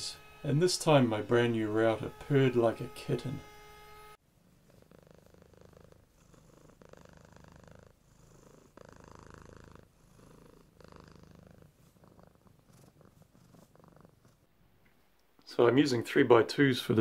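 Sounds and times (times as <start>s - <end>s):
router cutting wood: 0.0s - 4.2s.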